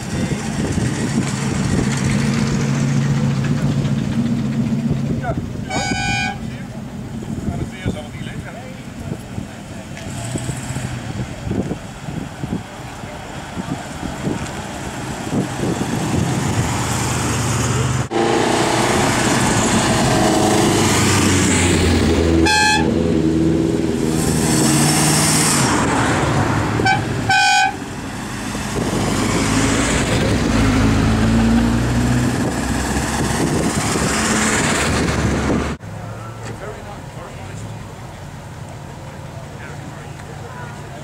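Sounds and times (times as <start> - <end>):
cars driving past: 0.0 - 41.0
car horn toots: 5.7 - 6.5, 22.4 - 23.0, 26.8 - 27.8.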